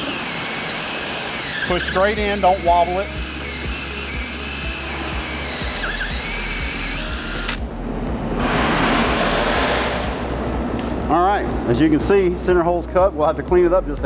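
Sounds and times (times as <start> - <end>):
cordless drill motor whine: 0.0 - 7.6
rough rushing noise: 8.2 - 10.5.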